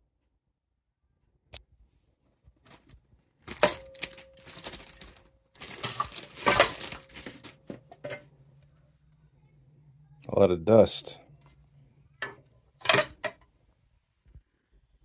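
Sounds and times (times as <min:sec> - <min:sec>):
faint low hum: 0:00.0 - 0:15.0
metal cover clinking and scraping: 0:05.6 - 0:08.3, 0:12.2 - 0:13.4.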